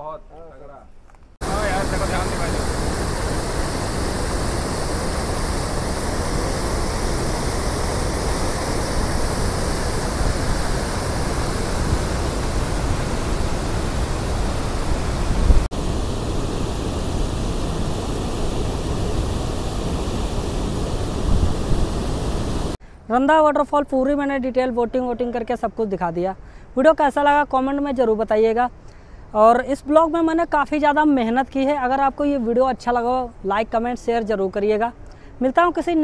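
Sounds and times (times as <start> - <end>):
waterfall roaring: 1.4 - 22.8.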